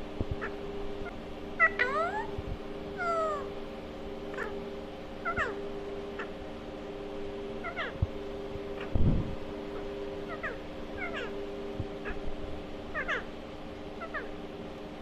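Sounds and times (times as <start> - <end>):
steady hum: 0.0 - 15.0
parakeet calls: 0.4 - 2.4, 3.0 - 3.6, 4.3 - 4.6, 5.2 - 5.6, 6.2 - 6.4, 7.6 - 8.0, 9.7 - 11.4, 12.0 - 12.3, 12.9 - 13.3, 14.0 - 14.4.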